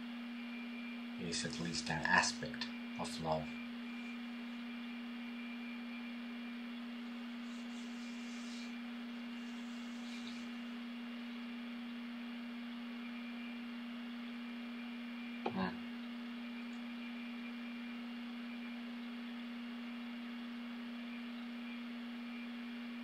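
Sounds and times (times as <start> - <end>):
electrical hum with hiss: 0.0 - 23.0
soft breaths: 7.2 - 10.8.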